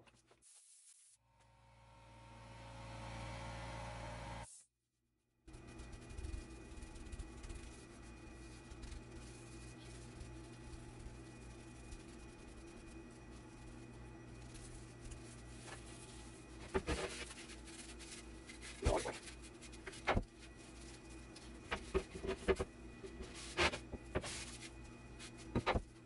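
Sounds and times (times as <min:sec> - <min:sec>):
steady low hum: 0:05.5 - 0:26.0.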